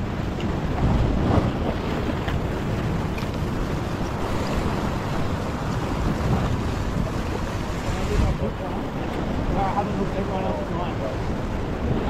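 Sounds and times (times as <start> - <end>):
surf breaking against rocks: 0.0 - 12.0
wind rumbling on microphone: 0.0 - 12.0.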